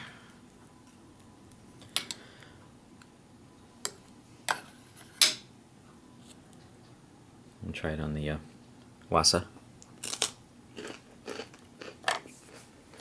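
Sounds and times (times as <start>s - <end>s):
crispbread crackling as it breaks: 10.0s - 11.5s.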